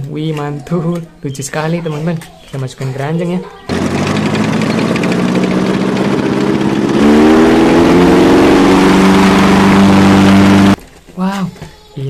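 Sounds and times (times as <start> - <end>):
tank engine revving: 3.7 - 10.8.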